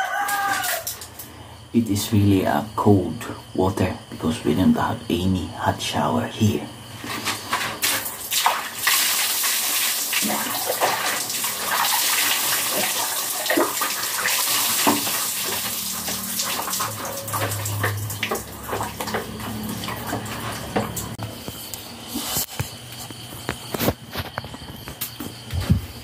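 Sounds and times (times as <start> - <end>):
water poured from a dipper: 7.8 - 21.2
water splashing onto floor: 7.8 - 21.2.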